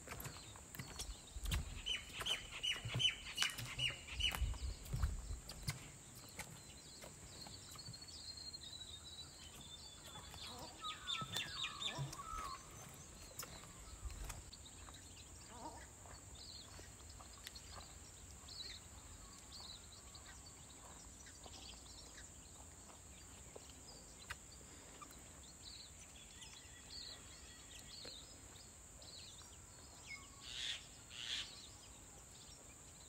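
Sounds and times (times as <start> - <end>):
small birds chirping: 0.0 - 33.0
soft low thumps and clicks: 0.3 - 8.0.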